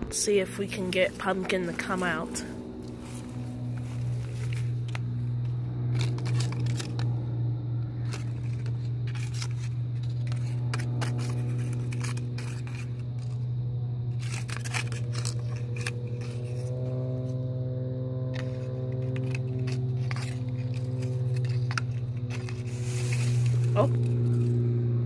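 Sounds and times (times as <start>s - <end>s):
low machine hum: 0.0s - 25.0s
hand rustling through dry leaves: 1.0s - 5.0s, 20.1s - 24.6s.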